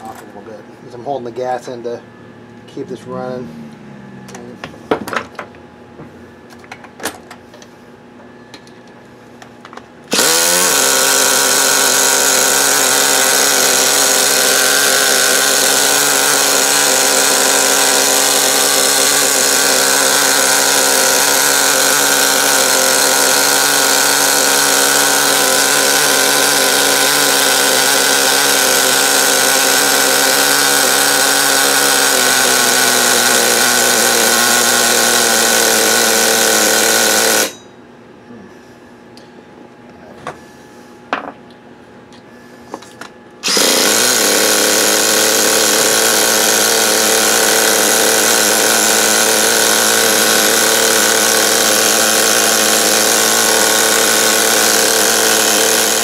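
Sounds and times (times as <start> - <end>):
model engine revving at high revs: 10.1 - 37.6, 43.4 - 56.0.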